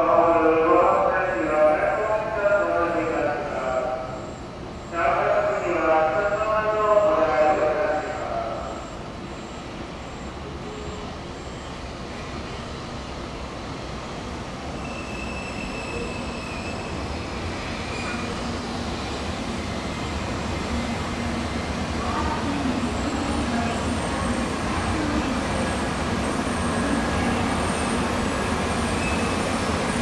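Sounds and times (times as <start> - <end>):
train wheels rumbling on rail: 7.0 - 30.0.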